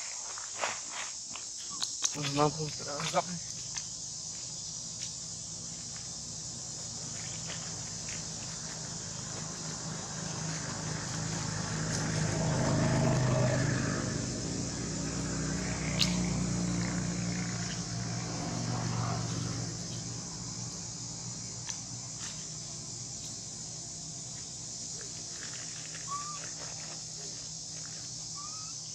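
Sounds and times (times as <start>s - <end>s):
insects buzzing: 0.0s - 28.9s
vehicle engine passing: 6.2s - 23.0s.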